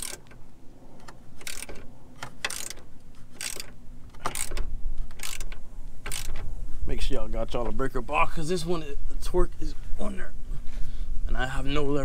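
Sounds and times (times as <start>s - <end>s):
ratchet wrench clicking: 0.0s - 0.4s, 1.0s - 6.4s.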